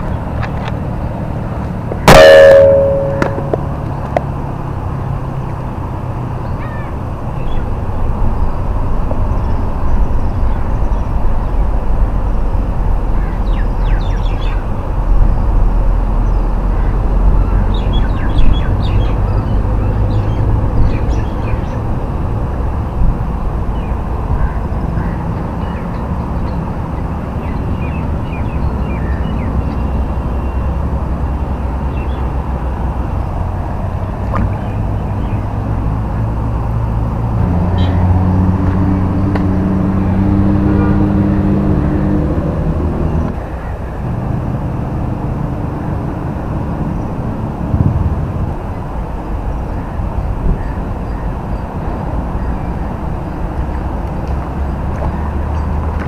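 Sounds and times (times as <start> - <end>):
steady low rumble: 1.5 - 4.1, 43.4 - 51.0
loud pitched call: 2.1 - 3.6.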